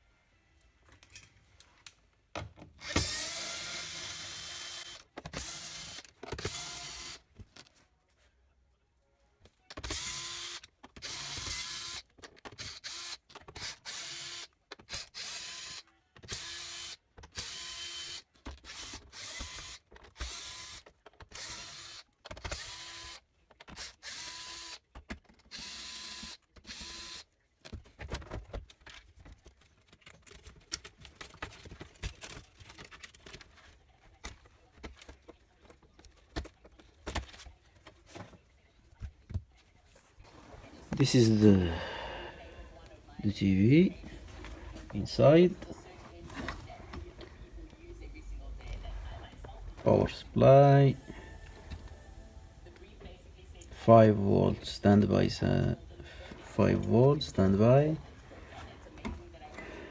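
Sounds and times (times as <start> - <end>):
electric screwdriver whirring: 2.8 - 7.2, 9.8 - 24.8, 25.5 - 27.3.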